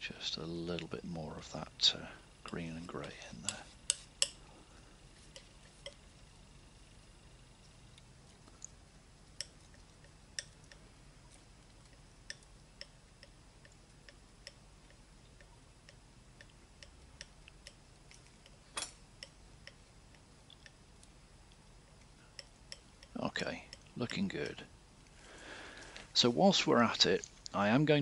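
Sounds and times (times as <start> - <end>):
palette knife clicking and tapping: 2.5 - 4.4, 9.3 - 10.8, 11.8 - 18.6, 19.2 - 20.8, 22.0 - 24.3.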